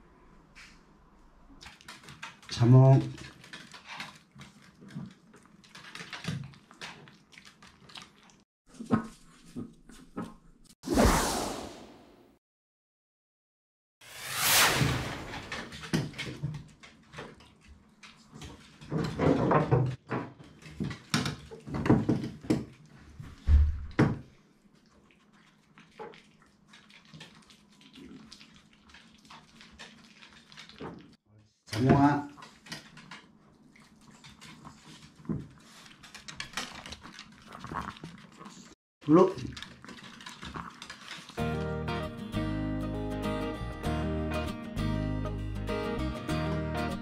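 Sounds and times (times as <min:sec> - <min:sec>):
dog claws clicking on wood: 0:34.3 - 0:38.3.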